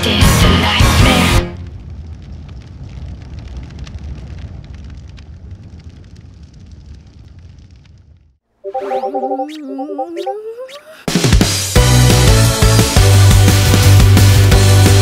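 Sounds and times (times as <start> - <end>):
low rumbling with crackles: 0.3 - 8.4.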